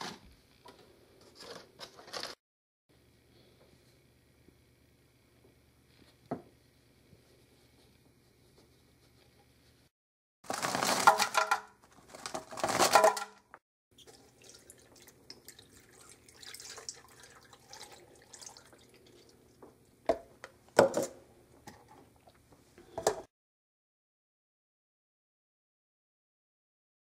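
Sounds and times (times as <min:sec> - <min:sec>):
milk pouring into blender jar: 0:14.0 - 0:19.4.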